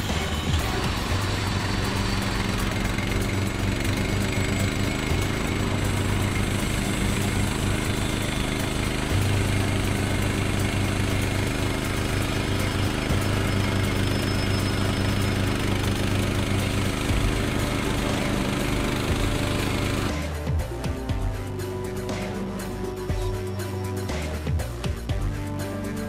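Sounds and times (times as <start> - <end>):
bandsaw mill engine running: 0.0 - 20.6.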